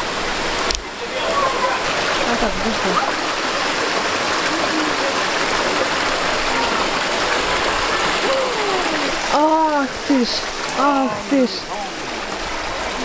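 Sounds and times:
stream rushing over rocks: 0:00.0 - 0:13.0.

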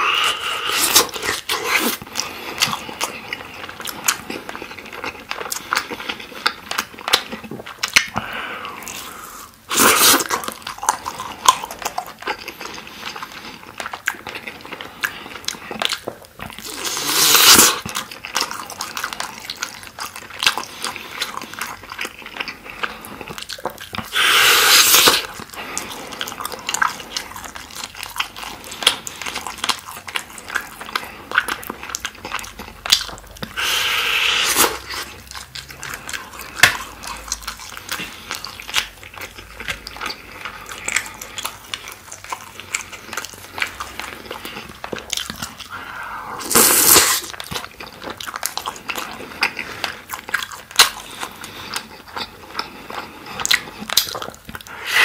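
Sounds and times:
chewing and wet mouth smacks: 0:00.0 - 0:55.0.

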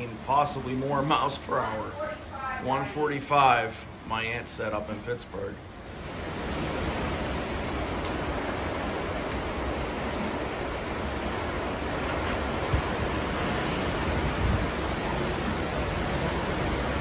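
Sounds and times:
heavy rain: 0:00.0 - 0:17.0
gusting wind: 0:05.6 - 0:17.0.

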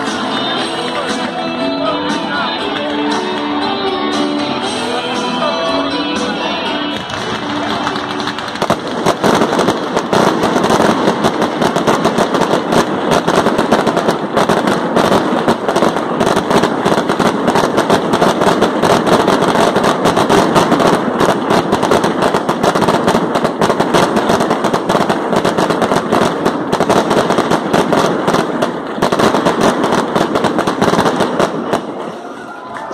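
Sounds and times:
fireworks launches and crackling bursts: 0:00.0 - 0:05.6, 0:06.2 - 0:32.9.

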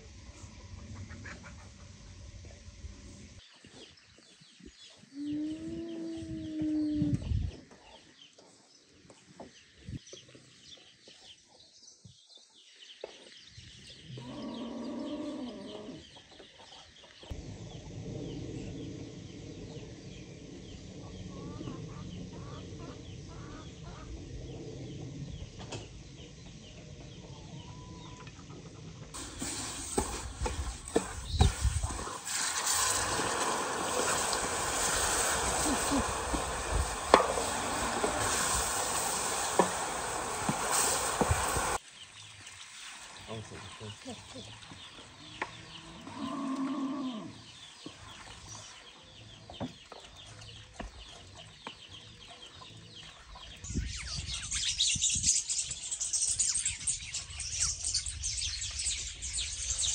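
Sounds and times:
chickens calling: 0:00.8 - 0:02.1, 0:21.0 - 0:25.0, 0:26.4 - 0:41.8.

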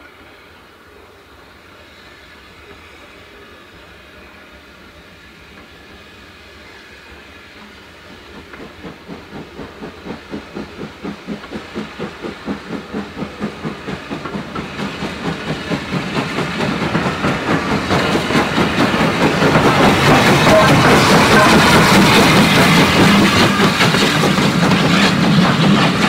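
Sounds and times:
loud steam hiss: 0:00.0 - 0:26.0
steam locomotive exhaust beats: 0:00.0 - 0:26.0.

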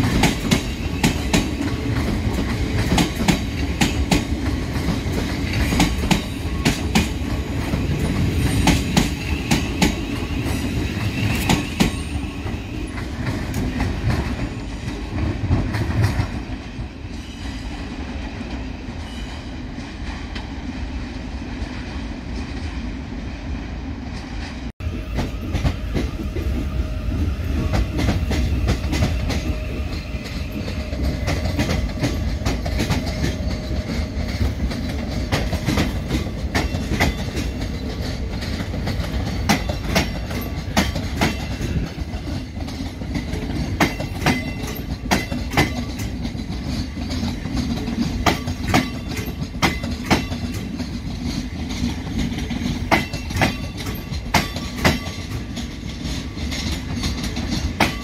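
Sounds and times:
wheels clacking over rail joints: 0:00.0 - 0:17.3, 0:27.6 - 0:58.0
train low rumble: 0:00.0 - 0:58.0.

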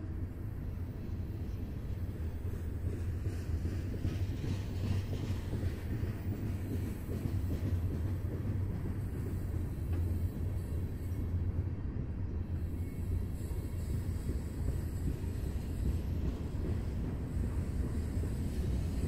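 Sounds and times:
freight train rumbling past: 0:00.0 - 0:19.0.

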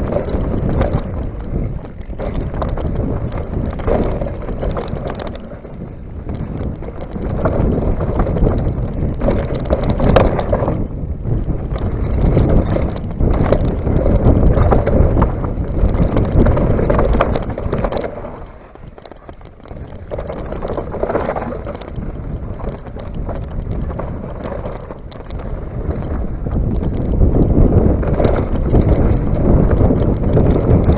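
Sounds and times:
bike rattling and knocking: 0:00.0 - 0:30.9
tyres rolling over dirt and stones: 0:00.0 - 0:30.9
wind buffeting microphone: 0:00.0 - 0:30.9.

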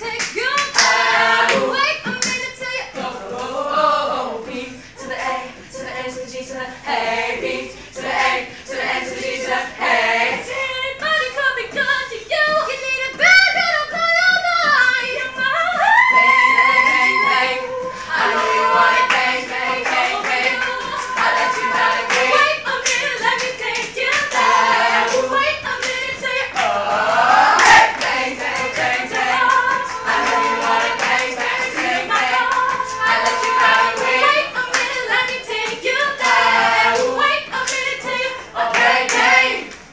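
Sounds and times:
a cappella group singing: 0:00.0 - 0:39.9
hand clapping: 0:00.1 - 0:02.5, 0:16.1 - 0:39.9.

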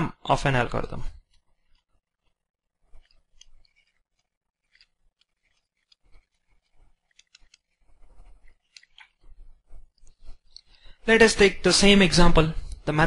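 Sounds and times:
stylus scratching on pen tablet: 0:01.2 - 0:10.5.

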